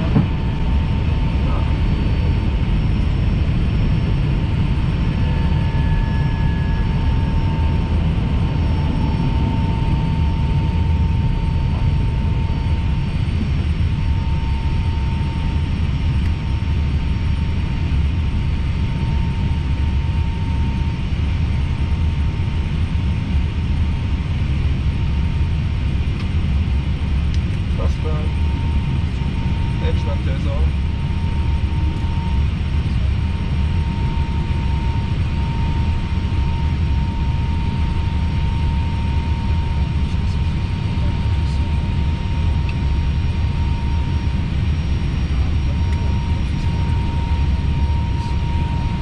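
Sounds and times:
faint steady whine: 0.0 - 49.0
low rumble of airflow and engines: 0.0 - 49.0.

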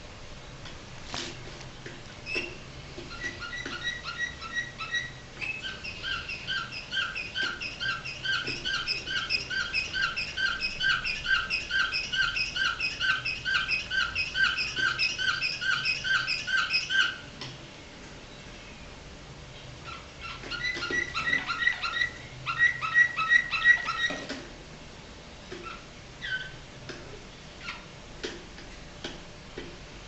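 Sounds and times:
canary singing: 2.2 - 17.3, 19.6 - 24.3, 25.6 - 26.6, 27.5 - 27.9.

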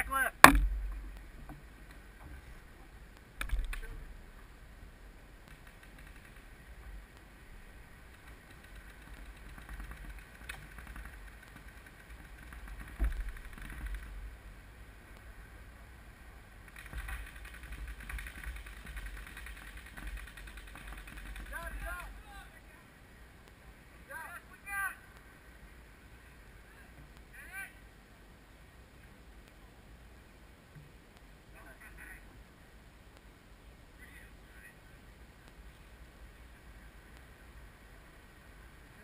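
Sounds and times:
knocks: 0.4 - 1.6.

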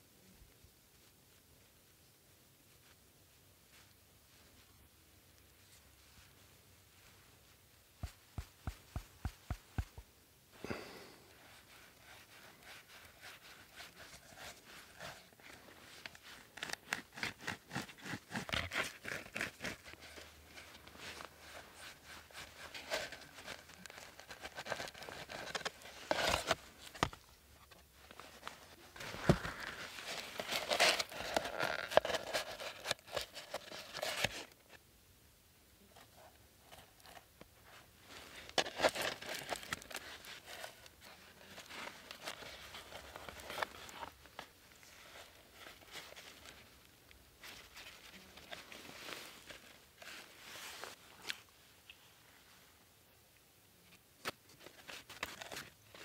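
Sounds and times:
birch bark crackling and crinkling: 11.4 - 34.8.

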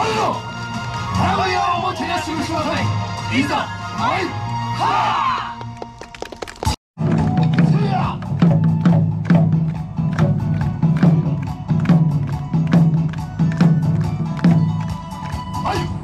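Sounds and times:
music with driving percussion beat: 7.0 - 16.0.

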